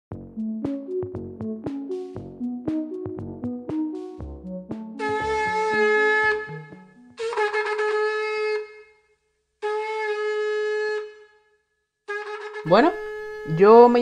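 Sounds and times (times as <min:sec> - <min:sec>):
low electronic bass line: 0:00.1 - 0:07.0
horn-like long held notes: 0:04.8 - 0:08.8, 0:12.1 - 0:14.0.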